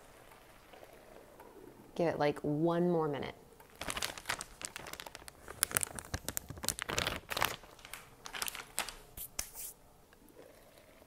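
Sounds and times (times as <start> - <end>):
plastic bag crinkling: 3.7 - 9.7.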